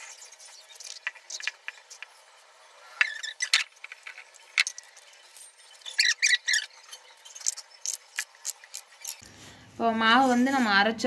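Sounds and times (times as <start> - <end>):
short squeaks: 2.9 - 3.8.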